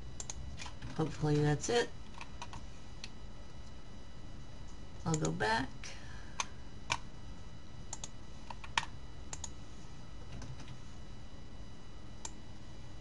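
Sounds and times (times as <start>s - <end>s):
low background hum: 0.0s - 13.0s
keyboard and mouse clicks: 7.9s - 9.6s.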